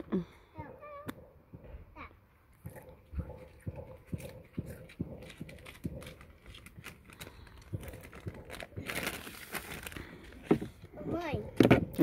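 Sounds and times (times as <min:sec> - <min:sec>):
crisp packet crinkling: 0:05.2 - 0:10.4.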